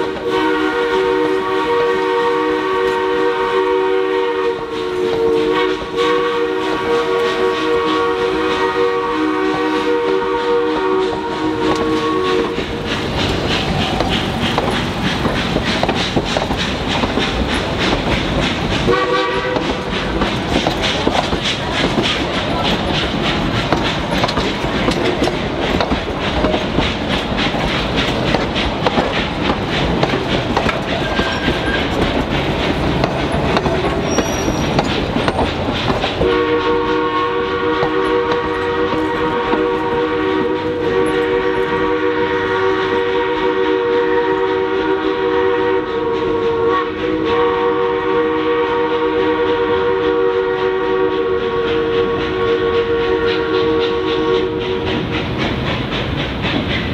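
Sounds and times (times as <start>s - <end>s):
steam locomotive chime whistle: 0.0s - 12.9s, 18.8s - 20.2s, 33.6s - 34.9s, 36.2s - 55.0s
train wheels clicking over track: 0.0s - 56.9s.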